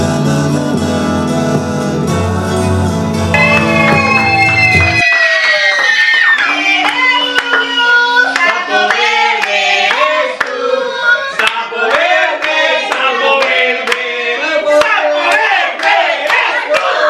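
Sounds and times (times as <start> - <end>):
hands clapping: 3.4 - 10.6, 11.4 - 14.1, 14.8 - 17.0
adults and children singing: 5.6 - 17.0.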